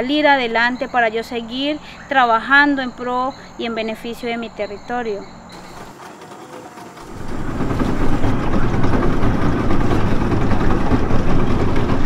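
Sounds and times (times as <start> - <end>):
motorboat engine running: 4.4 - 12.0.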